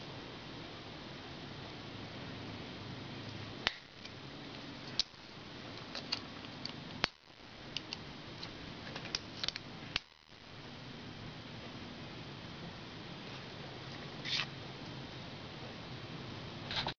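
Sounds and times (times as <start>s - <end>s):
metallic snaps: 3.6s - 4.2s, 5.8s - 10.4s.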